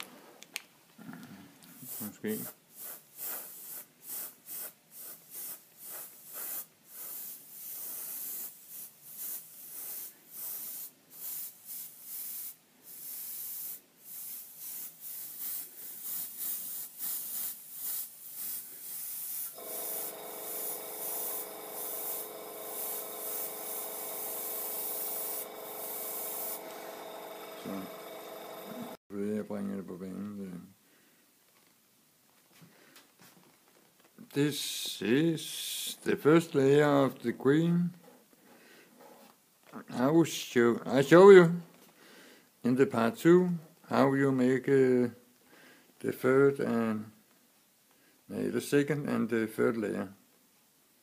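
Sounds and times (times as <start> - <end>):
airbrush hissing: 1.8 - 29.0
small motor humming: 19.6 - 29.0.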